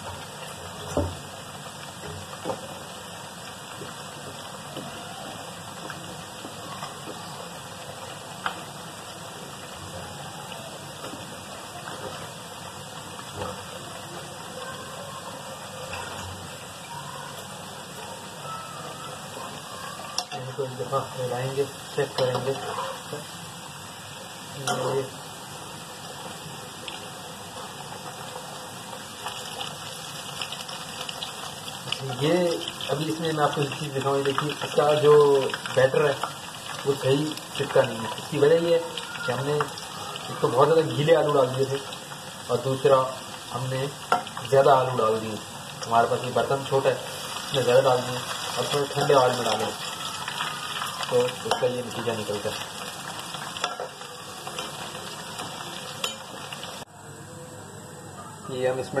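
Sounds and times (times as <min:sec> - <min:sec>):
deep-frying sizzle: 0:00.0 - 0:56.9
oil crackling: 0:00.0 - 0:56.9
crackling: 0:26.3 - 0:40.4.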